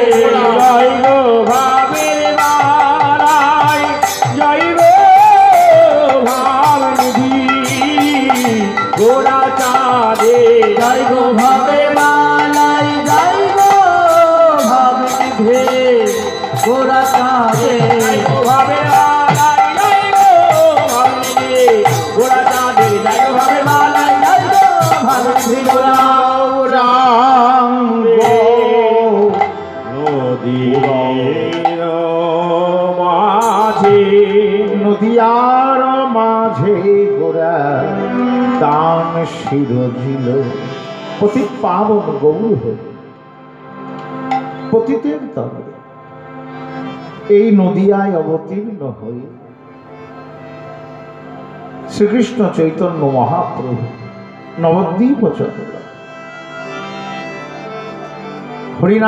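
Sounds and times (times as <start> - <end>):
khol drums beating fast: 0.0 - 26.3
wavering melody: 0.0 - 59.0.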